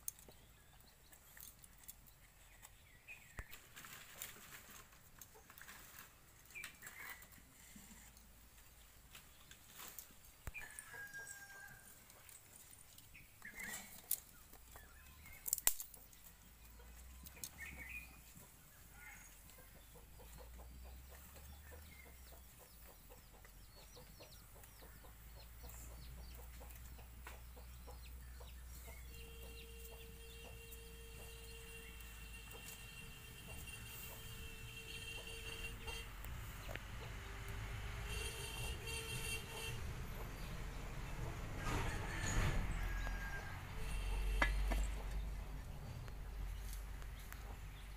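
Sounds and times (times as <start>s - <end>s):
chickens clucking: 16.0s - 47.9s.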